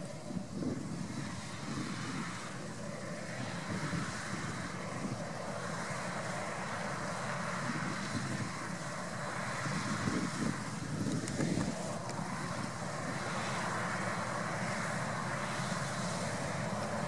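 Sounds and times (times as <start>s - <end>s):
combine harvester running: 0.0s - 17.0s.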